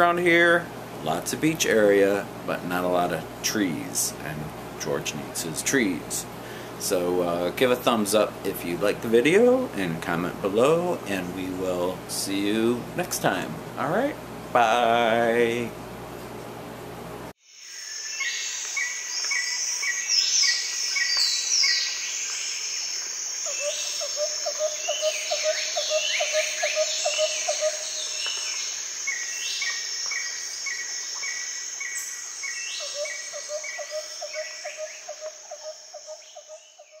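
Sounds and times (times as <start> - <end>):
steady high insect whine: 17.4 - 37.0.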